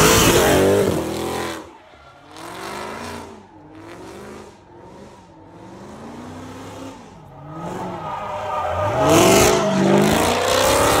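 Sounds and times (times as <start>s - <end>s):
car engine revving hard: 0.0s - 1.7s, 8.8s - 11.0s.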